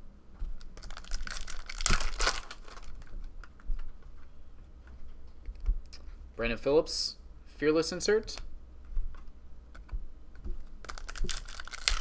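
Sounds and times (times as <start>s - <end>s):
foil wrapper tearing and crinkling: 0.8s - 3.1s, 10.8s - 12.0s
cards clicking and flicking: 10.8s - 12.0s.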